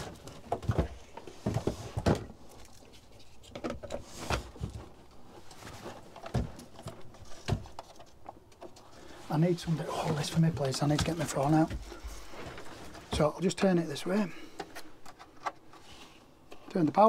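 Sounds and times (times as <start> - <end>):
handling knocks and clicks: 10.1 - 15.8.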